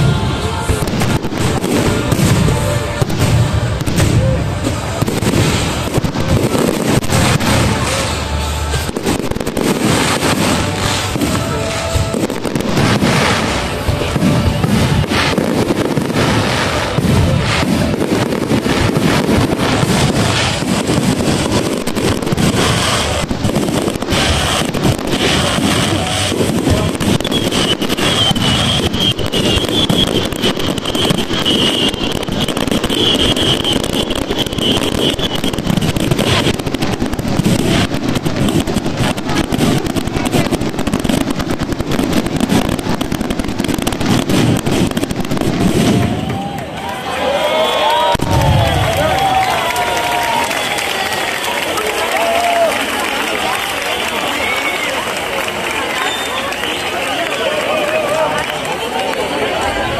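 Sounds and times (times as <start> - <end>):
high wavering firework whistle: 0.0 - 39.9, 43.6 - 51.4
fireworks bangs and crackling: 0.0 - 59.9.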